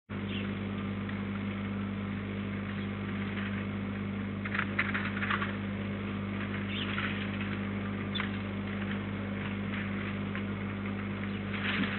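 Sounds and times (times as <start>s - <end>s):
low electrical hum: 0.1s - 11.9s.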